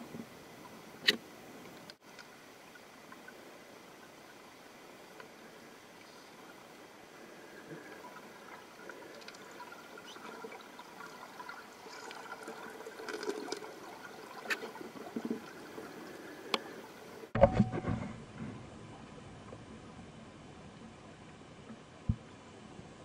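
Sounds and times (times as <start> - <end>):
faint steady underwater hiss: 0.0 - 23.0
bubbling gurgling water: 7.8 - 17.0.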